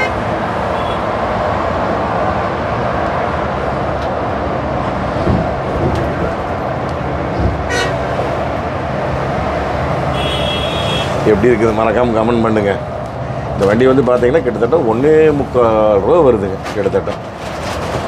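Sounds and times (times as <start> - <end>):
vehicle horn toot: 0.0 - 1.1, 7.7 - 8.0, 10.1 - 11.2
highway road and wind noise: 0.0 - 18.0.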